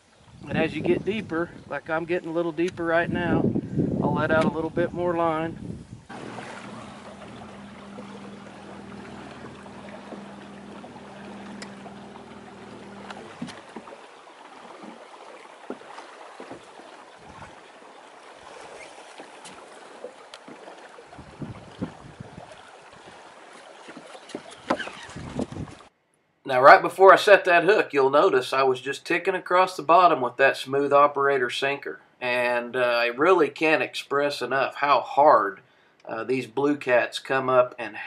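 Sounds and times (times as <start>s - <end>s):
wind on microphone: 0.0s - 14.0s, 17.2s - 17.7s, 21.1s - 23.2s, 24.5s - 25.9s
electric motor humming: 6.1s - 14.0s
light knocks: 6.1s - 14.0s
water washing along a hull: 6.1s - 25.9s.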